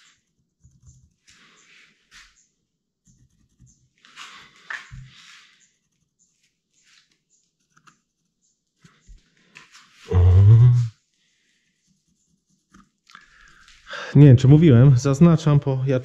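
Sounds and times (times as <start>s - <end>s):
pencil scratching on wood: 3.0s - 9.0s, 11.6s - 13.0s.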